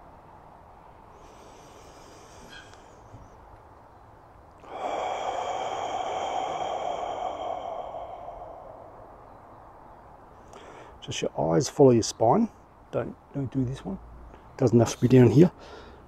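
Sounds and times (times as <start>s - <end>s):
forceful exhale through mouth: 1.1s - 3.4s, 4.6s - 9.5s.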